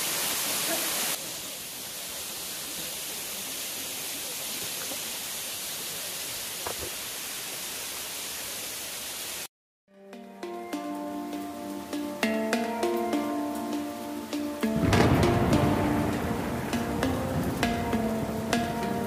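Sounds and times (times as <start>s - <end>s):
waterfall rushing: 0.0s - 9.5s, 10.6s - 19.0s.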